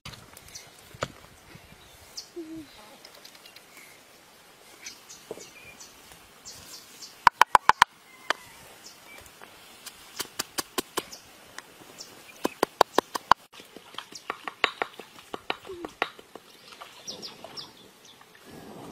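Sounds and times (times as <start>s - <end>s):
pestle pounding in mortar: 14.3s - 16.3s.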